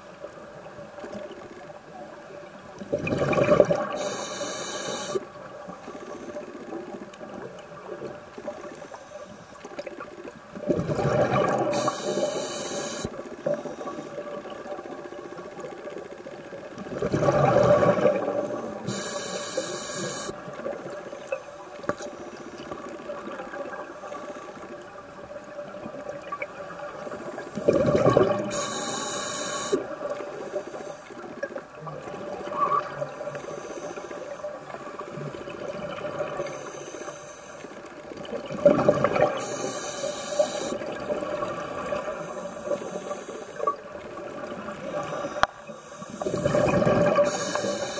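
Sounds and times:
bubbles gurgling underwater: 0:02.8 - 0:04.1, 0:09.8 - 0:12.3, 0:16.7 - 0:19.0, 0:25.6 - 0:28.7, 0:38.2 - 0:39.4, 0:46.2 - 0:47.9
regulator hissing: 0:18.8 - 0:20.4, 0:28.5 - 0:29.8, 0:47.3 - 0:47.9.

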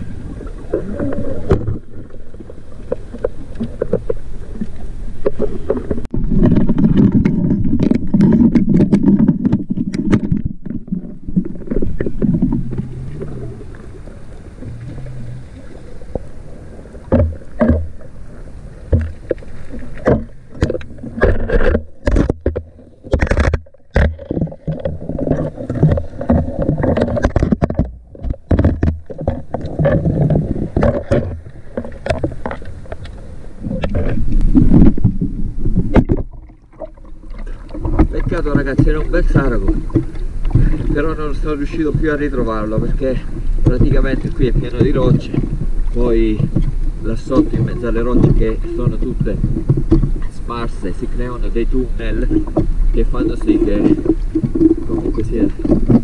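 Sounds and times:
muffled underwater rumble: 0:00.0 - 0:56.0
sharp underwater clicks and knocks: 0:00.7 - 0:02.2, 0:02.8 - 0:13.5, 0:17.0 - 0:18.1, 0:18.8 - 0:56.0.

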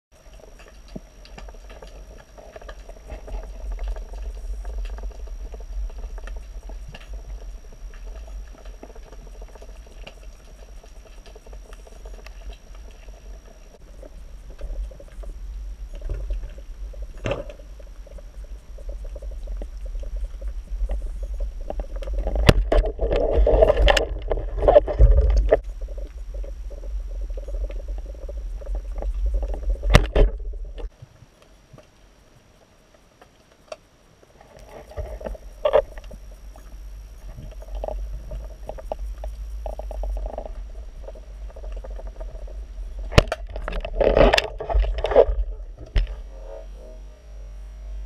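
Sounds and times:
bubbling: 0:00.2 - 0:30.9, 0:34.6 - 0:47.4
underwater rumble: 0:00.2 - 0:30.9, 0:34.6 - 0:48.0
clicks and crackles: 0:00.2 - 0:47.5.

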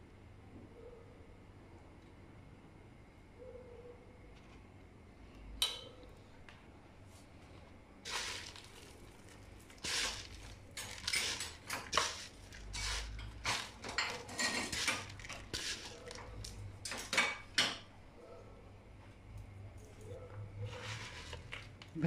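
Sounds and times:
dry noodles rustling and crackling: 0:08.0 - 0:17.1.

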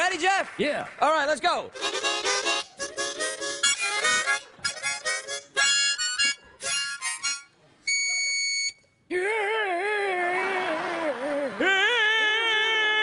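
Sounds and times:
harmonica chords: 0:01.7 - 0:09.0
harmonica high note held: 0:01.8 - 0:09.0.

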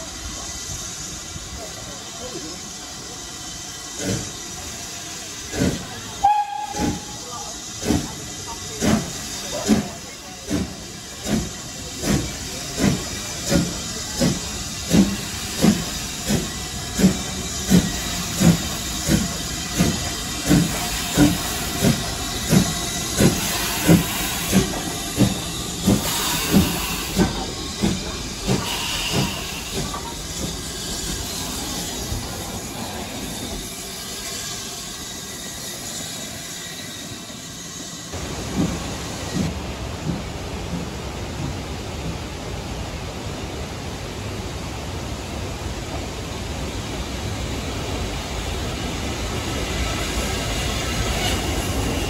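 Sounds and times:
steam locomotive exhaust chuffs: 0:00.0 - 0:40.9
steam hissing: 0:00.0 - 0:52.0.

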